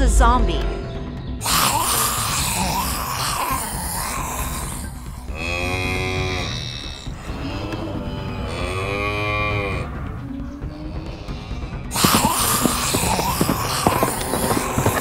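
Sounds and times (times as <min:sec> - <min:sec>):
cow mooing: 0:01.5 - 0:10.2, 0:12.0 - 0:15.0.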